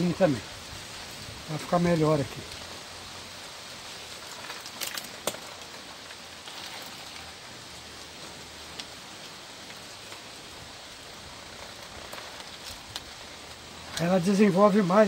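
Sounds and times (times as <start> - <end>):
steady hiss: 0.0 - 15.0
plastic cup crackling: 4.1 - 9.0, 9.6 - 14.3.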